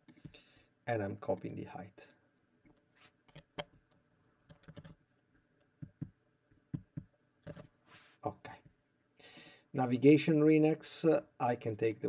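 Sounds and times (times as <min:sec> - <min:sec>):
computer keys and mouse clicks: 0:03.3 - 0:05.0, 0:06.8 - 0:07.7.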